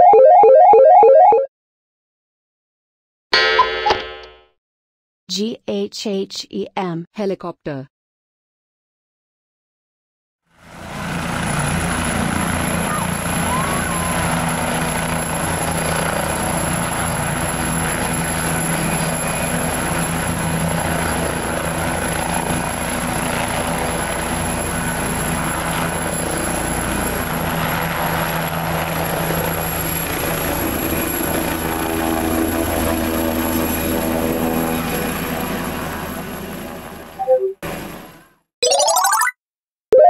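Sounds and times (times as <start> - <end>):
helicopter rotor blades: 10.6 - 38.2
helicopter turbine whine: 10.6 - 38.2
higher tones: 38.6 - 39.3.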